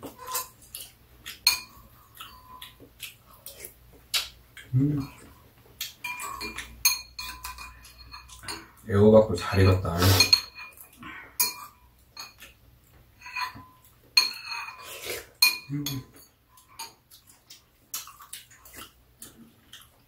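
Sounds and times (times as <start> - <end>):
spoons clinking on ceramic bowls: 1.4 - 2.8, 6.0 - 8.8, 9.4 - 12.6, 13.2 - 17.0.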